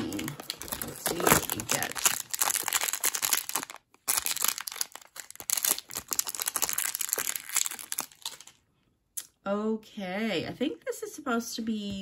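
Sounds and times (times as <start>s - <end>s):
plastic wrapper crinkling and tearing: 0.0s - 8.7s.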